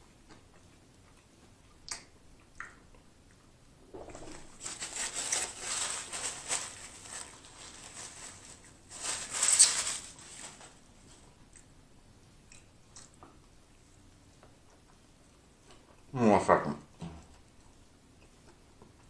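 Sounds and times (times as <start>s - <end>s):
paper napkin rustling: 3.9s - 11.2s.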